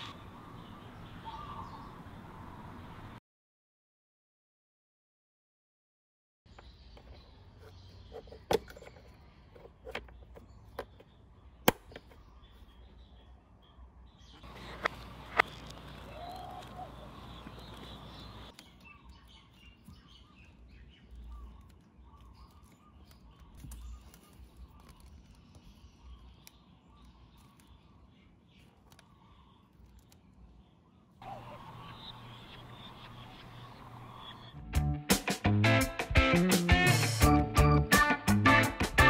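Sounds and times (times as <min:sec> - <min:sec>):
faint bird chirps: 0:00.0 - 0:02.1, 0:06.5 - 0:34.6.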